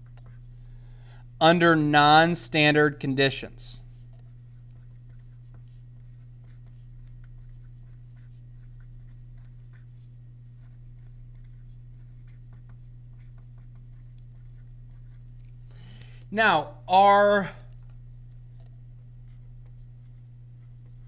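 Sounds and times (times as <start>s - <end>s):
steady low hum: 0.0s - 21.0s
pen scratching on paper: 3.9s - 15.2s, 19.3s - 21.0s.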